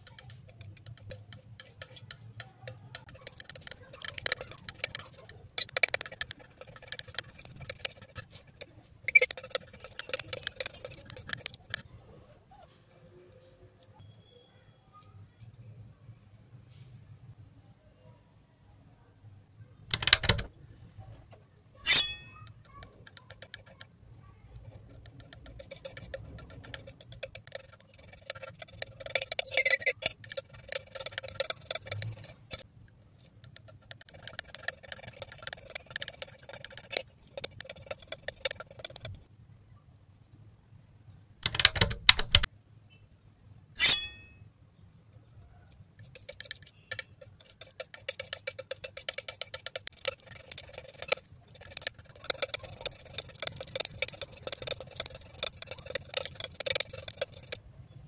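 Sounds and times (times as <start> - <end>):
palette knife clicking in paint: 0.0 - 11.8, 19.9 - 20.5, 21.9 - 23.9, 24.6 - 39.3, 41.4 - 42.5, 46.0 - 57.6
sharp ringing taps: 21.9 - 22.8, 43.8 - 44.4.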